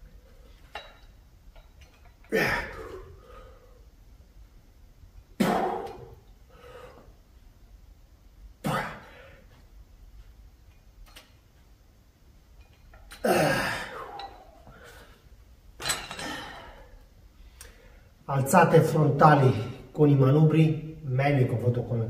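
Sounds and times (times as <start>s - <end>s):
man exhaling and grunting: 2.3s - 3.6s, 5.4s - 7.0s, 8.6s - 9.4s, 13.1s - 14.9s.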